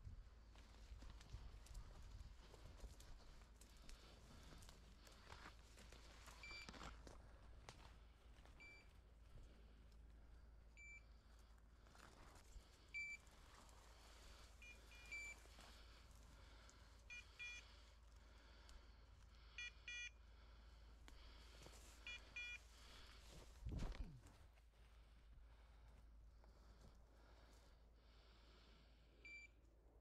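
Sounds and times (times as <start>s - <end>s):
fuller-toned paired beeps: 8.6s - 8.9s, 10.8s - 11.1s, 12.9s - 13.2s, 14.6s - 15.4s, 17.1s - 17.7s, 19.6s - 20.2s, 22.0s - 22.6s, 29.2s - 29.6s.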